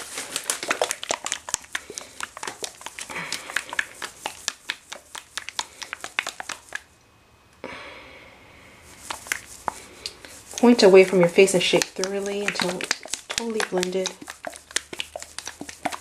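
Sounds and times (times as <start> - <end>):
plastic bottle crinkling and clicking: 0.0 - 4.4, 10.6 - 16.0
faint steady hiss: 0.0 - 16.0.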